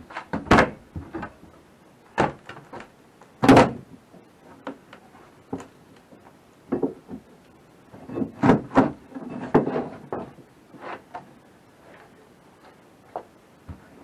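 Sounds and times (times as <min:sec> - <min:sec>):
drywall and wood prying: 0:08.0 - 0:11.1.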